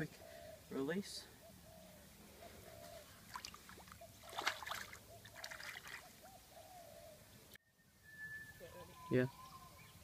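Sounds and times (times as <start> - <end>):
creek water trickling: 2.8 - 6.3
fish splashing in water: 3.3 - 6.1.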